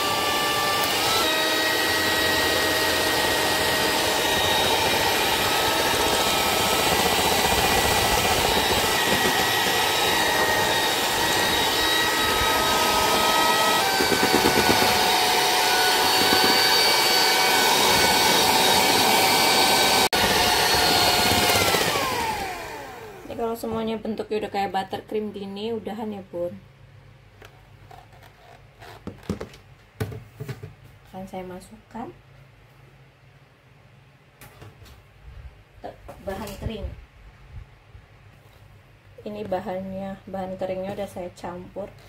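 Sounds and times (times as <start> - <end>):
electric mixer whining: 0.0 - 23.5.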